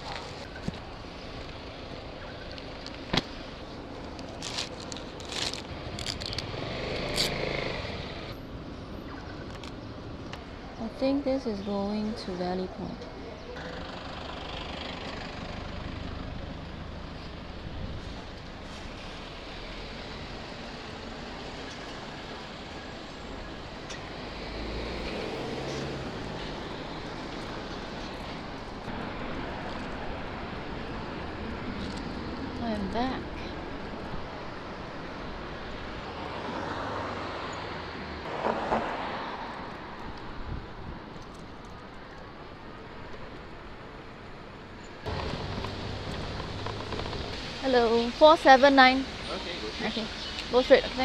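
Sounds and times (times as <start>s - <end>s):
vehicle engine hum: 0.0s - 11.0s, 11.8s - 51.0s
passing cars: 0.0s - 51.0s
straps and plastic scraping: 4.0s - 7.4s
vehicle engine passing close: 5.7s - 8.4s, 24.1s - 28.6s, 45.1s - 50.3s
tyres rushing on road: 12.9s - 51.0s.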